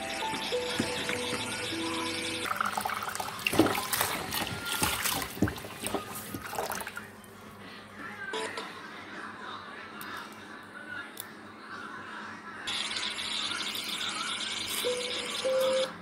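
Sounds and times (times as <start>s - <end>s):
background music: 0.0s - 3.3s
tap water splashing into bowl: 2.5s - 7.0s.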